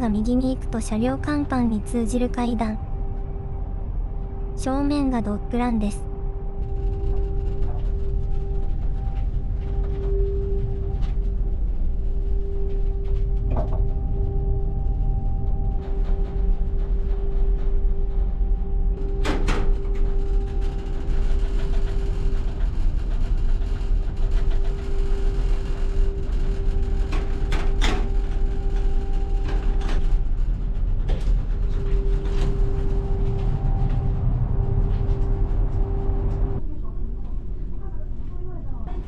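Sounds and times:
ship engine rumble and hum: 0.0s - 39.0s.

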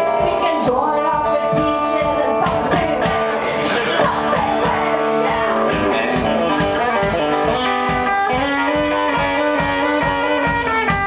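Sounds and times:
person singing: 0.0s - 6.2s
electric guitar: 0.0s - 11.0s
quick drum beat: 0.0s - 11.0s.

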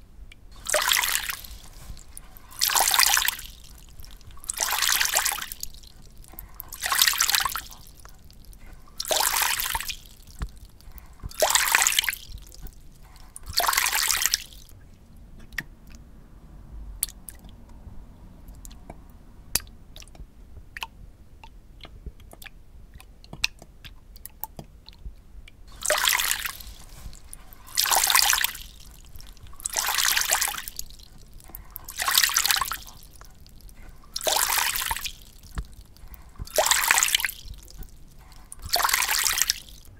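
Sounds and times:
water drips: 0.3s - 16.1s, 17.0s - 17.8s, 18.4s - 39.9s
water splashing and trickling: 0.5s - 14.8s, 17.0s - 17.7s, 25.6s - 39.9s.

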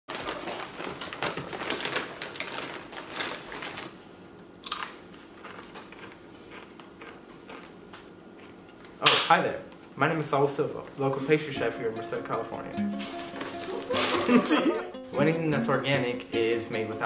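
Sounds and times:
plastic bag crinkling: 0.1s - 4.0s
chewing crunches: 4.6s - 7.8s.

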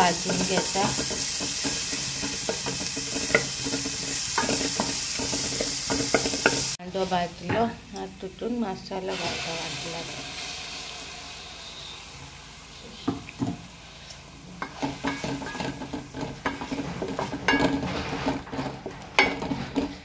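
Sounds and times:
spoon scraping a steel pan: 0.0s - 6.8s, 14.6s - 20.0s
onions sizzling in a pan: 0.0s - 7.2s, 8.3s - 20.0s.

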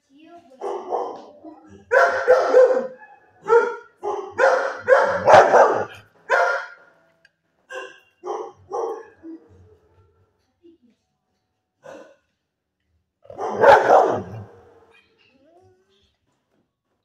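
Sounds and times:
dog barking: 0.6s - 6.9s, 7.7s - 9.6s, 11.8s - 12.2s, 13.3s - 14.9s.

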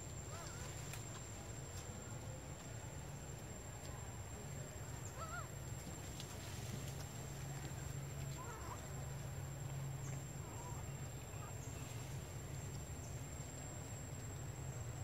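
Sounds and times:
steady low hum: 0.0s - 15.0s
wavering animal calls: 5.0s - 5.6s, 8.3s - 9.0s.

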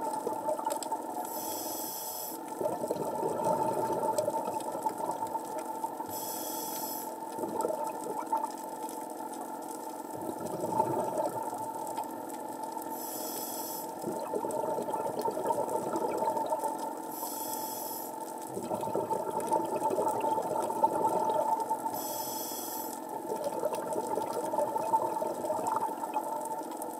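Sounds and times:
gurgling exhaled bubbles: 0.0s - 1.3s, 2.5s - 6.2s, 7.2s - 8.6s, 10.1s - 12.0s, 14.0s - 17.1s, 18.4s - 22.1s, 23.0s - 26.7s
regulator inhalation hiss: 1.3s - 2.4s, 6.1s - 7.1s, 12.9s - 14.0s, 17.1s - 18.2s, 22.0s - 23.0s.

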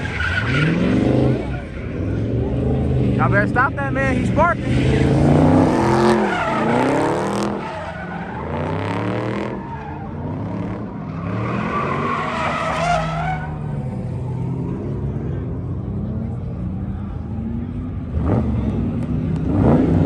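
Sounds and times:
tyres squealing and skidding: 0.0s - 3.1s, 4.2s - 15.5s
car engine revving: 0.0s - 20.0s.

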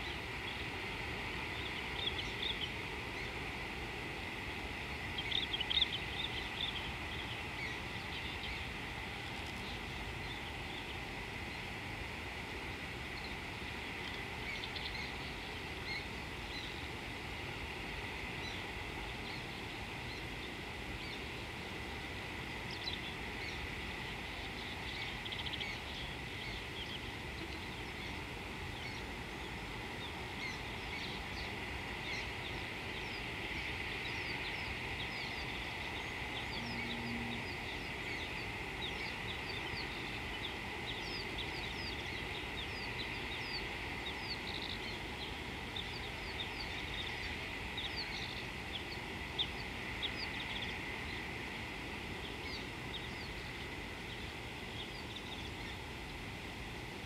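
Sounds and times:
low rumbling noise: 34.0s - 41.2s
steady high drone: 35.3s - 38.4s.

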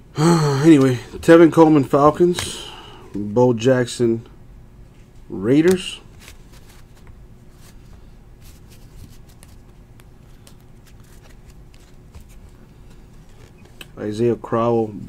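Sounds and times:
faint hum: 0.0s - 15.0s
cards clicking and rustling: 5.5s - 14.0s.

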